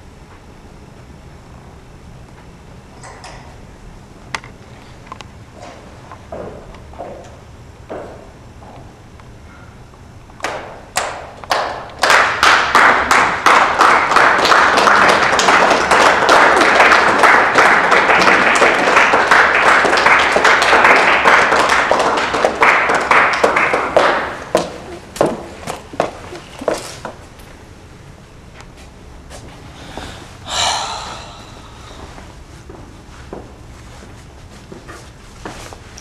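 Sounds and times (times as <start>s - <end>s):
audience applause: 11.0s - 24.9s.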